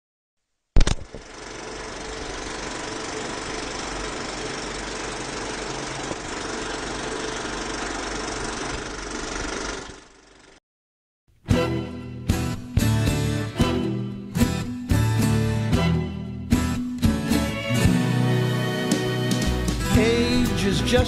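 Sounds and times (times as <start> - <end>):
rattling machine-like whir: 1.0 - 10.6.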